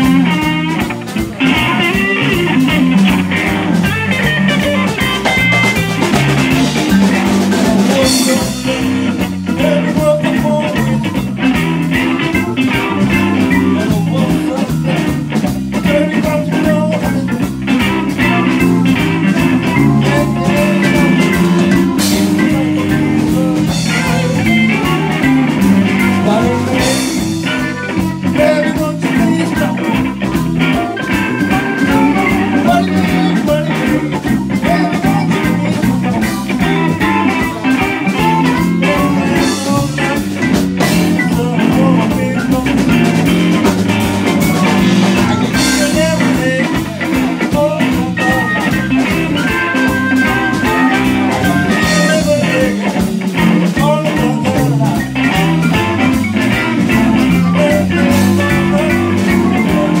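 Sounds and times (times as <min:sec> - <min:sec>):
drum kit: 0:00.0 - 1:00.0
electric bass: 0:00.0 - 1:00.0
electric guitar: 0:00.0 - 1:00.0
keyboard: 0:00.0 - 1:00.0
saxophone: 0:15.8 - 1:00.0.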